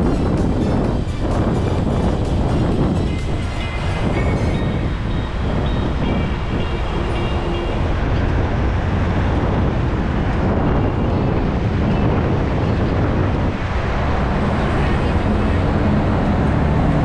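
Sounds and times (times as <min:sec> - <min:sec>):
road traffic rushing: 0:00.0 - 0:17.0
wind buffeting microphone: 0:00.0 - 0:17.0.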